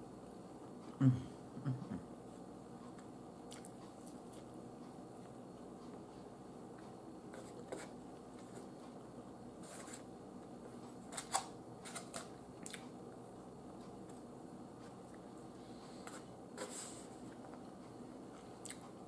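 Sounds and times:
chewing: 2.9 - 4.6, 12.6 - 13.0, 18.3 - 19.0.

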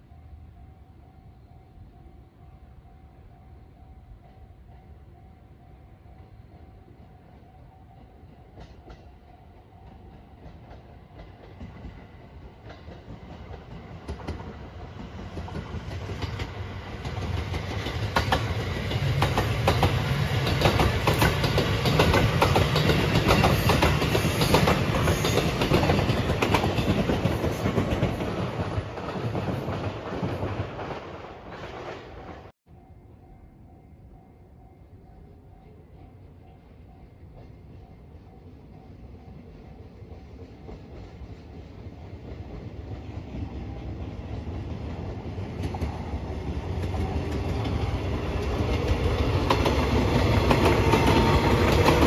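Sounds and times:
train passing: 0.0 - 52.0
wheels clacking over rail joints: 10.1 - 32.5, 44.4 - 52.0.

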